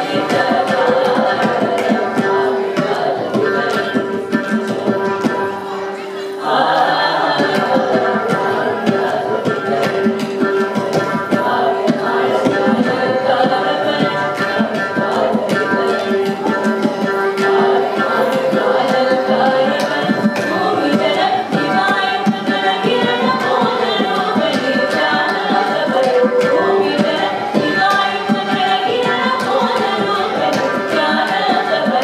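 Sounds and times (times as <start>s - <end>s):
group singing in unison: 0.0s - 32.0s
hand drum: 0.0s - 32.0s.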